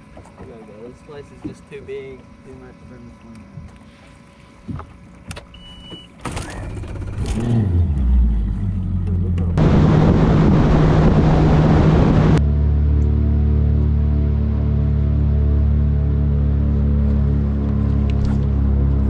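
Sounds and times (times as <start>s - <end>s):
short beep: 5.5s - 6.1s
outboard motor revving: 6.2s - 19.0s
rush of wind and water: 9.6s - 12.4s.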